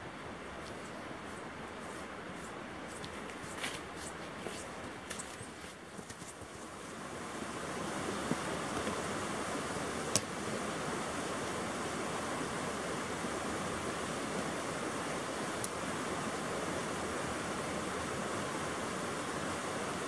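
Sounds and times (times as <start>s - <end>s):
creek rushing: 0.0s - 20.0s.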